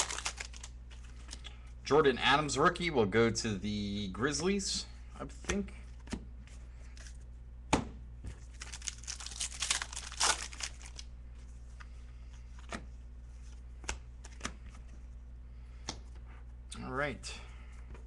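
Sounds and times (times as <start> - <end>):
cards rustling: 0.0 - 1.5, 8.3 - 15.0.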